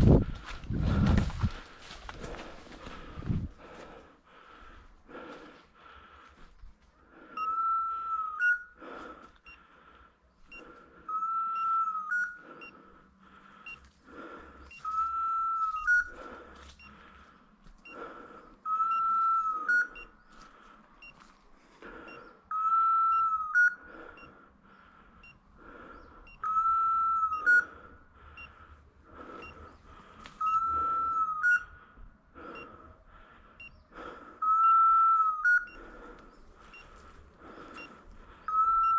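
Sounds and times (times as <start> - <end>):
electronic collar beeping: 7.4 - 8.8, 10.5 - 12.8, 14.7 - 16.2, 18.7 - 20.1, 22.5 - 24.3, 26.3 - 27.8, 30.4 - 31.7, 34.4 - 35.8, 38.5 - 38.9.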